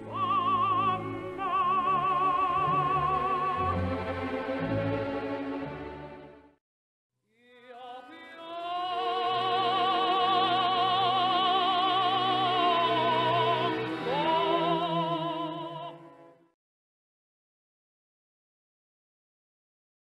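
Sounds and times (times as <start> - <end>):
operatic soprano singing: 0.0 - 4.5, 7.4 - 16.3.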